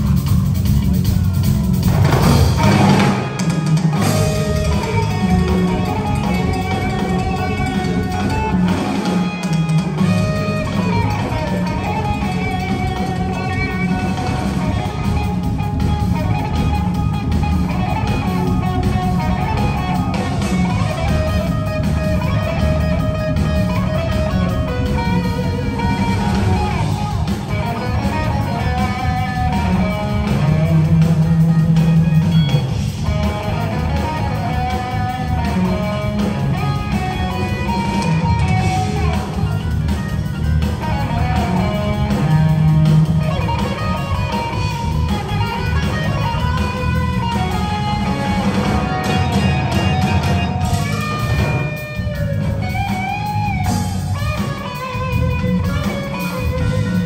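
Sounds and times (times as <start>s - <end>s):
electric guitar lead: 0.0s - 57.0s
jazz fusion band playing: 0.0s - 57.0s
keyboards: 0.0s - 57.0s.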